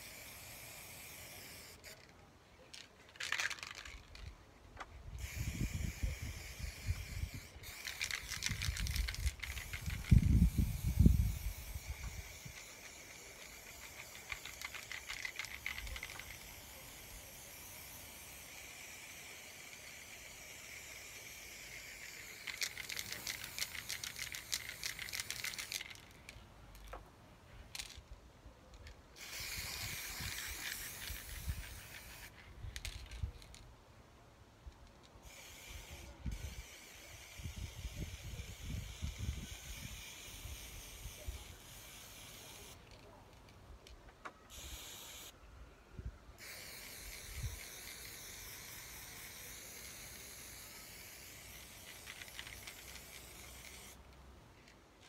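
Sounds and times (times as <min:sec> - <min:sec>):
spray can hissing: 0:00.0 - 0:02.1, 0:05.2 - 0:26.2, 0:29.2 - 0:33.5, 0:35.2 - 0:42.9, 0:44.5 - 0:45.3, 0:46.4 - 0:54.1.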